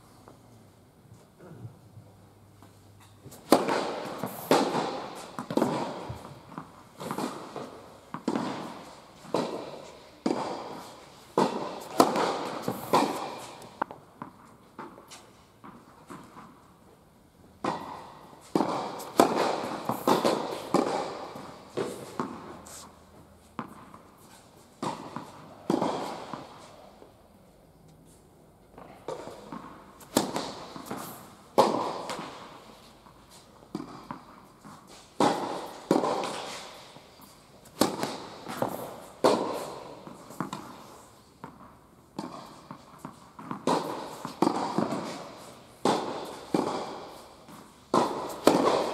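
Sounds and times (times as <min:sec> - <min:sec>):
tennis balls struck by rackets: 0:03.0 - 0:16.9, 0:17.6 - 0:27.2, 0:28.7 - 0:48.9
tennis balls bouncing on hard court: 0:03.2 - 0:16.9, 0:17.5 - 0:27.2, 0:28.7 - 0:48.9.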